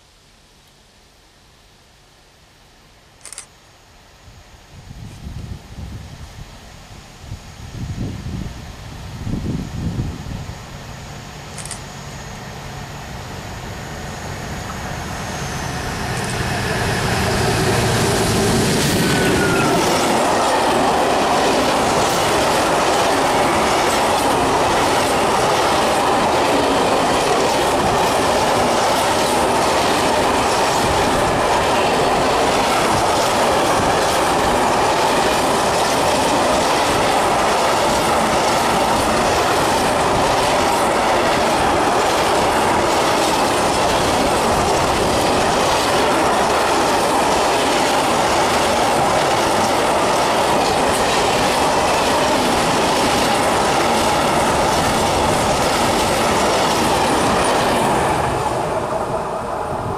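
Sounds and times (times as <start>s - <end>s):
freight train rumbling past: 7.6s - 59.9s.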